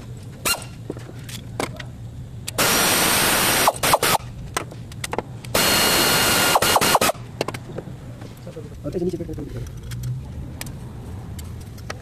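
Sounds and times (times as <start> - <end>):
pneumatic tool hissing: 2.6 - 4.2, 5.5 - 7.2.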